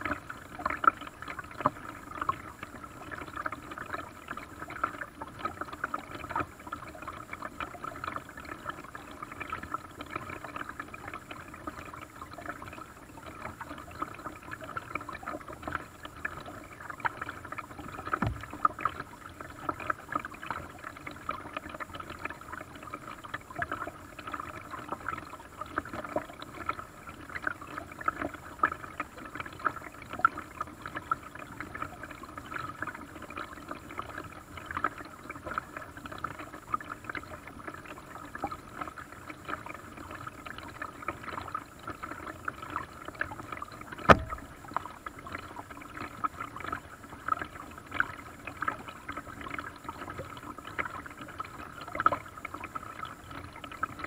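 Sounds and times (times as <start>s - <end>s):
paddle splashing in water: 17.2s - 19.0s, 43.9s - 45.0s
knock: 44.1s - 44.4s.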